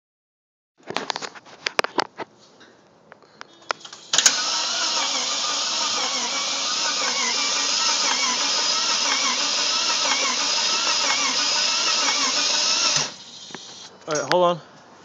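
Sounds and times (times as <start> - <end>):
starter motor cranking engine: 3.8 - 13.9
starter click: 8.0 - 12.3.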